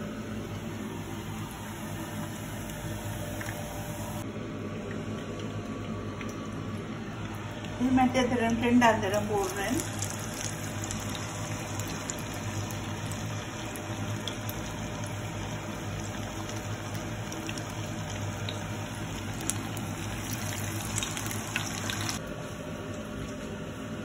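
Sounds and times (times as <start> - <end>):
low steady hum: 0.0 - 24.0
oil sizzling and crackling: 9.0 - 22.2.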